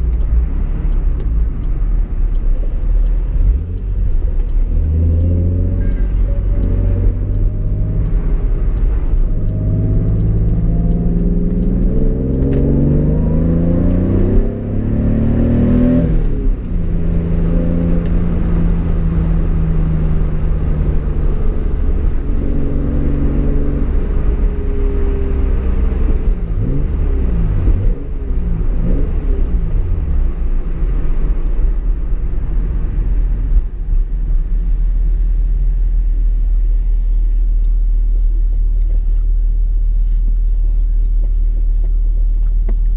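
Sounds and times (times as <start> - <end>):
car engine revving: 0.0 - 39.3
road noise: 0.0 - 42.9.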